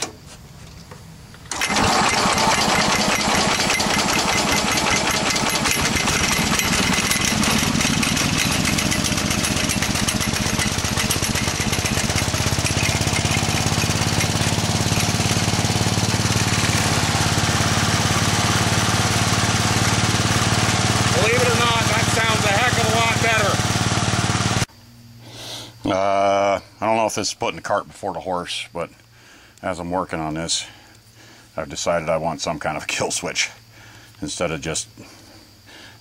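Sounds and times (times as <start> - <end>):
small gasoline engine running: 1.5 - 24.7.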